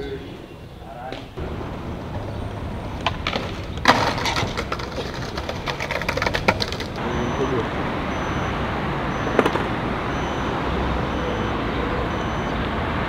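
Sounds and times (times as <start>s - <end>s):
skateboard wheels rolling on concrete: 1.1s - 10.5s
skateboard smacking slope: 1.4s - 7.0s, 9.3s - 9.8s
skateboard clattering on concrete: 2.1s - 7.0s.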